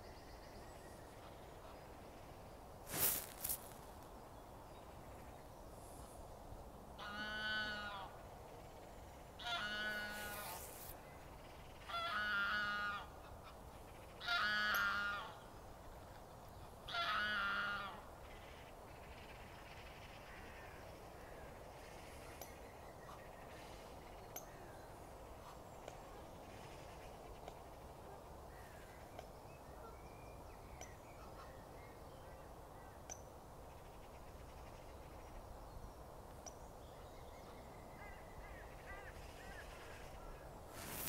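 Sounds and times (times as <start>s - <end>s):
waterfowl honking: 7.0s - 8.1s, 9.4s - 10.6s.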